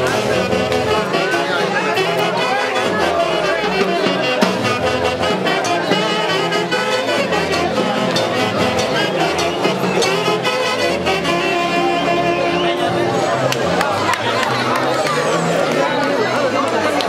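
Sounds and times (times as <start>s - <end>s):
saxophones playing melody: 0.0s - 13.5s
bass and percussion beat: 0.0s - 16.8s.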